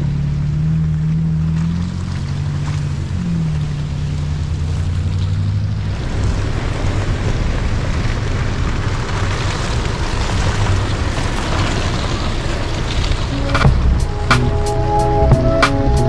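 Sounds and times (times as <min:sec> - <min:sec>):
low engine hum: 0:00.0 - 0:16.0
loud rushing drive noise: 0:13.3 - 0:16.0.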